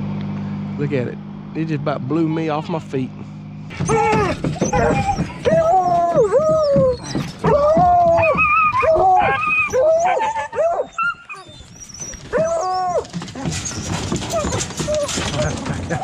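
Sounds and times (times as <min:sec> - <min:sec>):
hounds baying: 0:03.7 - 0:16.0.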